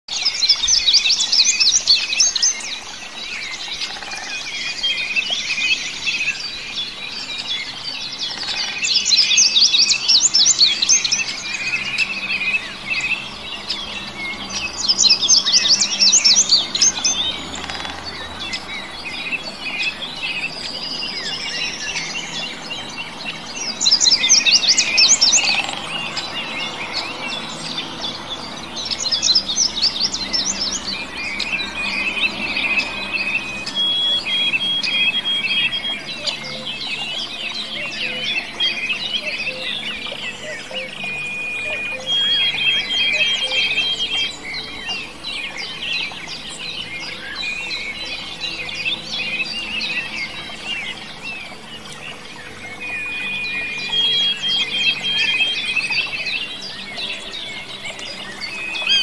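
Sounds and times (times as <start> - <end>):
songbirds singing: 0.0 - 59.0.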